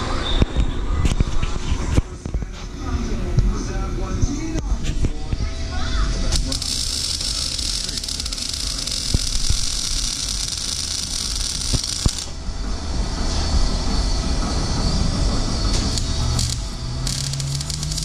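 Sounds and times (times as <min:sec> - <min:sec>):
arc welding hiss: 0:06.3 - 0:12.4, 0:15.4 - 0:18.0.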